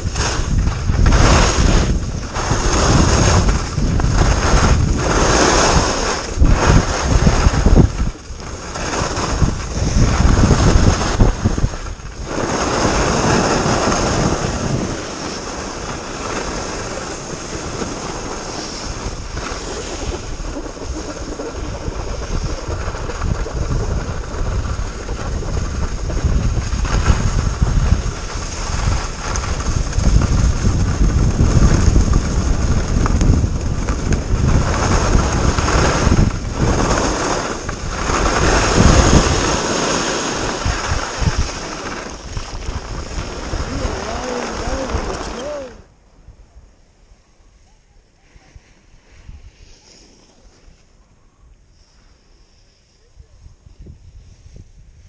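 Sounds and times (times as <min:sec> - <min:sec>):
skis scraping on snow: 0:00.0 - 0:45.8, 0:48.2 - 0:51.0
wind buffeting microphone: 0:00.0 - 0:46.8, 0:53.1 - 0:55.0.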